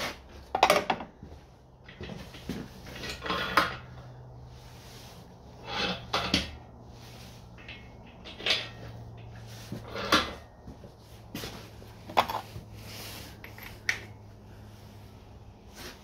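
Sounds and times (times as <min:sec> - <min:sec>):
steady low hum: 0:00.0 - 0:16.0
metal clunks and knocks: 0:00.5 - 0:01.2, 0:05.8 - 0:06.6, 0:07.6 - 0:10.8.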